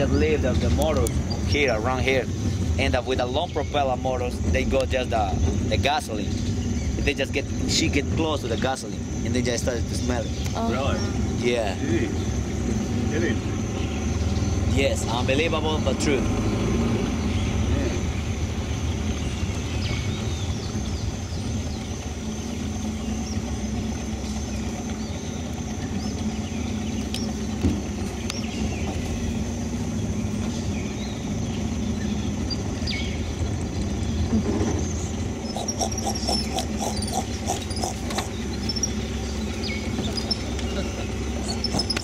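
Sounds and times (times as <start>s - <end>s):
outboard motor running: 0.0s - 42.0s
quick pulsed calls: 35.3s - 42.0s
high-pitched drone: 35.4s - 42.0s.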